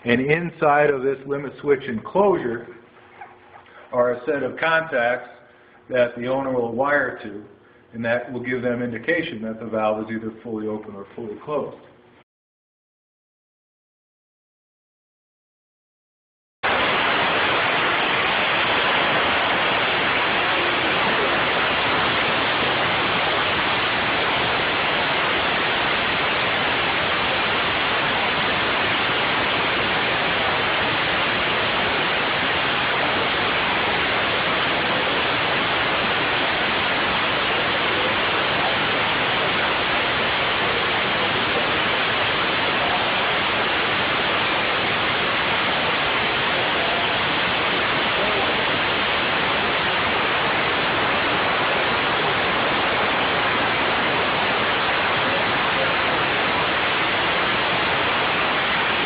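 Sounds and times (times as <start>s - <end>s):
compressed air hissing: 16.8s - 59.0s.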